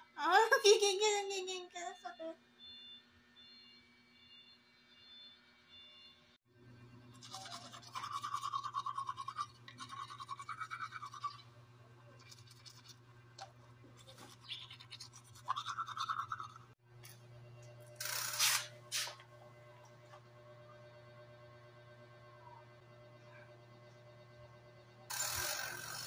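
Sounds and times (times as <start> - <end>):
toothbrush scrubbing teeth: 7.2 - 11.5, 12.2 - 13.0, 14.0 - 16.7.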